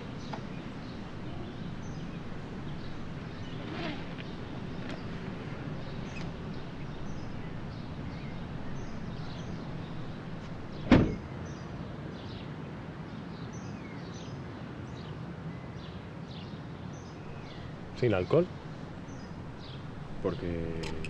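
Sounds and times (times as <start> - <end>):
faint bird chirps: 0.0 - 10.9
car boot lid slamming: 0.0 - 11.2.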